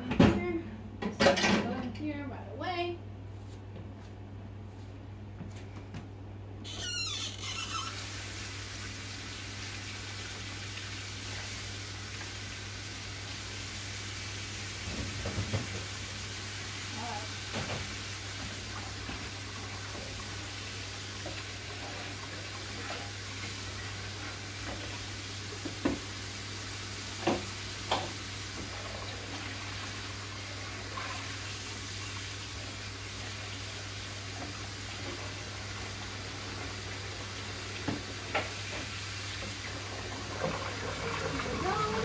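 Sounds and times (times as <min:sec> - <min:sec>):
kitchen tap running: 0:06.7 - 0:42.0.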